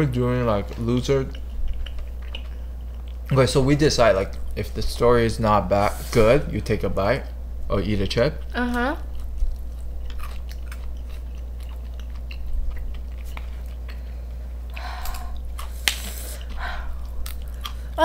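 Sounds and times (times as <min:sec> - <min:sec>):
person chewing crunchy food: 0:00.6 - 0:04.7, 0:09.0 - 0:18.0.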